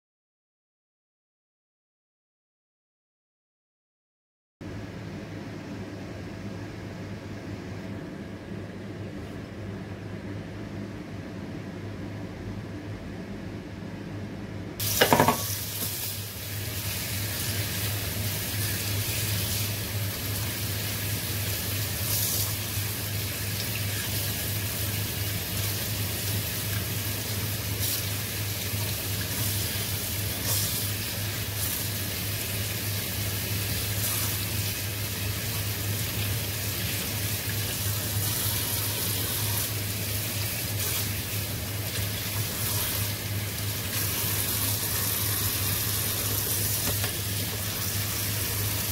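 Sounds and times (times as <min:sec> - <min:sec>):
low steady hum: 0:04.6 - 0:48.9
tap water running into sink: 0:14.8 - 0:16.0, 0:41.8 - 0:48.9.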